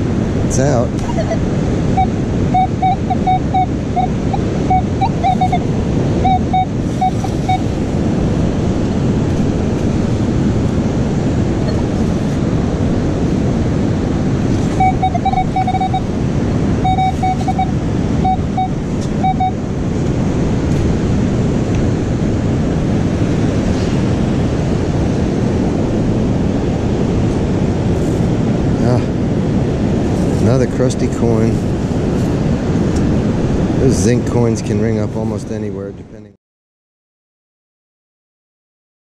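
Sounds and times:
wind noise on microphone: 0:00.0 - 0:36.2
metal detector short beeps: 0:01.0 - 0:01.4, 0:02.0 - 0:05.6, 0:06.2 - 0:07.7, 0:14.7 - 0:16.1, 0:16.8 - 0:19.6.

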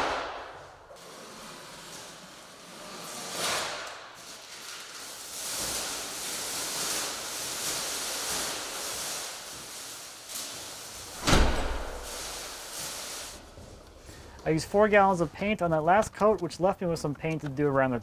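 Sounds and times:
plastic sheeting crinkling: 0:00.7 - 0:13.9.

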